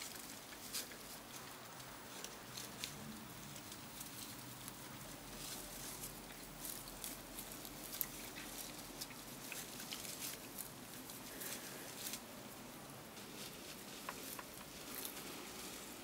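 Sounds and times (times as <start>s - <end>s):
faint rustling: 0.0s - 16.0s.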